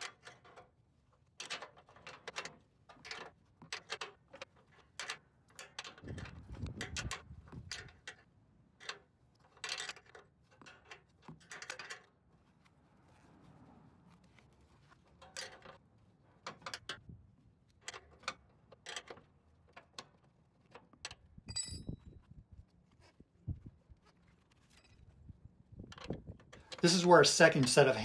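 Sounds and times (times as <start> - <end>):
ringing metal clink: 21.5 - 22.0.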